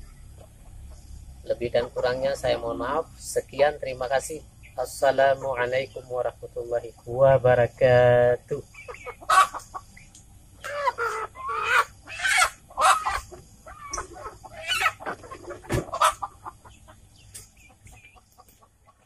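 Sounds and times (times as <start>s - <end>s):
chickens squawking: 0.0s - 7.3s, 8.4s - 19.0s
hens clucking: 0.0s - 19.0s.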